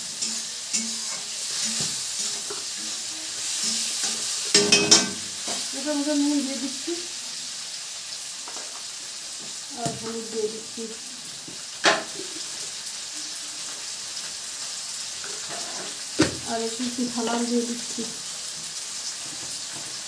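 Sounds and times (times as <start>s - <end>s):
vegetables sizzling in oil: 0.0s - 20.0s
metal spatula scraping pan: 0.1s - 5.2s, 15.2s - 16.0s.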